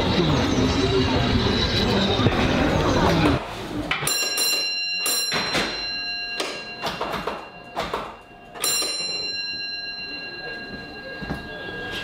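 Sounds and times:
struck bell ringing: 0:04.0 - 0:12.0.

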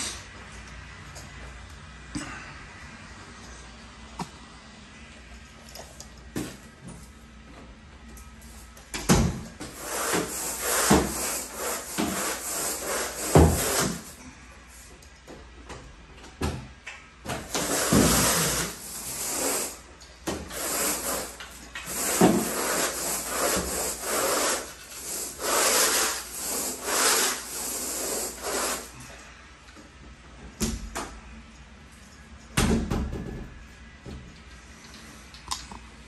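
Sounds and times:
carpet rake scraping through carpet: 0:09.8 - 0:14.1, 0:17.6 - 0:19.8, 0:20.5 - 0:28.9.

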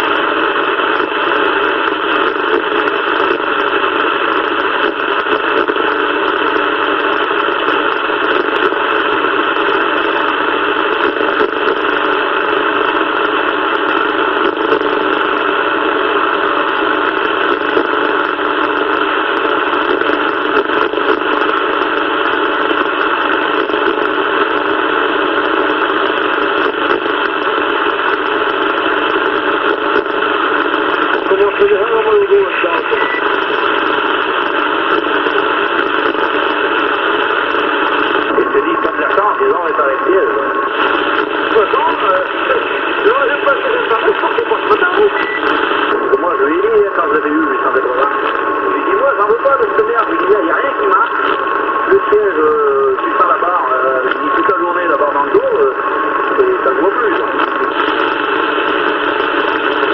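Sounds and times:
radio static hiss: 0:00.0 - 0:59.9.

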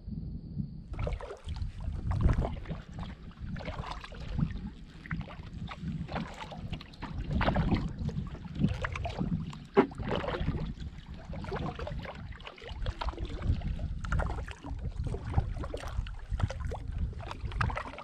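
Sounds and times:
low rumble: 0:00.0 - 0:09.5
paddle splashes: 0:00.9 - 0:18.0.

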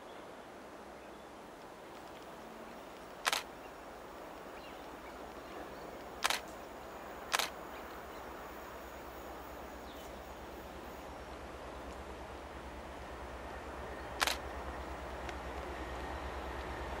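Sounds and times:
camera shutter clicks: 0:03.2 - 0:03.5, 0:06.2 - 0:06.5, 0:07.3 - 0:07.6, 0:14.2 - 0:14.4
diesel locomotive rumble: 0:04.3 - 0:17.0.

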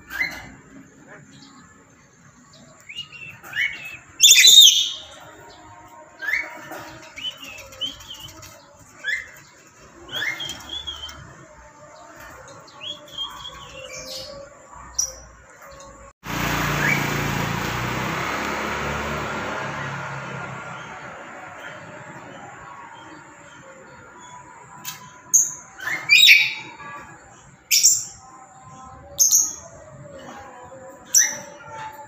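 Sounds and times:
bird harsh squawk: 0:03.6 - 0:05.1.

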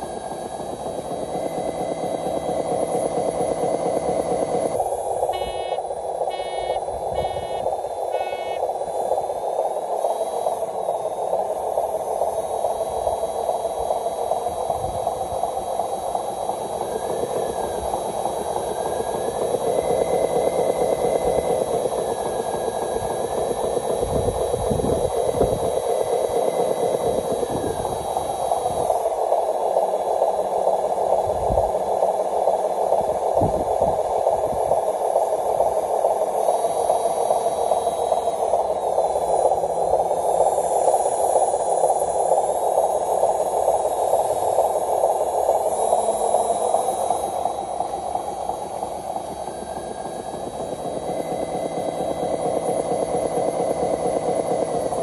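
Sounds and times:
electric motor buzzing whine: 0:00.0 - 0:08.8.

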